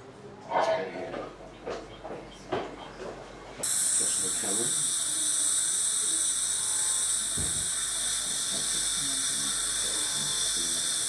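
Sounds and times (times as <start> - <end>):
dental equipment hissing: 3.6 - 11.0.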